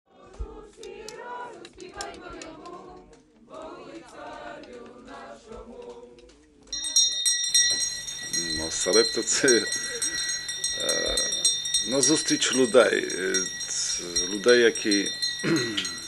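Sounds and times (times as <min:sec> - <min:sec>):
group singing unaccompanied: 0:00.1 - 0:15.0
high steady ringing: 0:06.7 - 0:16.0.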